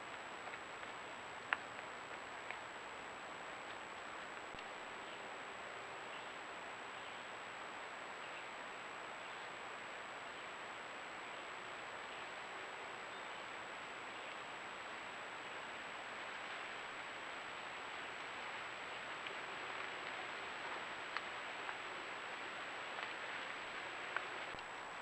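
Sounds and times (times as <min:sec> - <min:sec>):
microphone hiss: 0:00.0 - 0:25.0
faint ticks or snaps: 0:00.1 - 0:02.7, 0:19.1 - 0:24.7.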